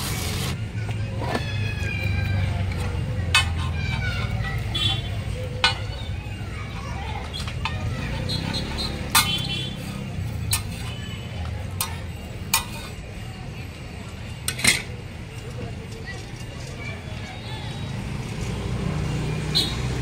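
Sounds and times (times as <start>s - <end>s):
distant street traffic rumble: 0.0s - 20.0s
metal spatula clinking on griddle: 9.1s - 9.6s, 11.7s - 13.0s.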